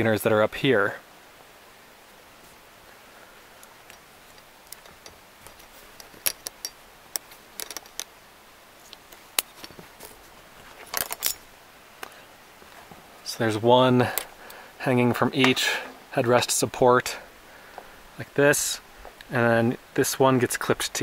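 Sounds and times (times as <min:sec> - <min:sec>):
metal carabiners clicking and clinking: 0:03.9 - 0:08.1, 0:10.8 - 0:11.5.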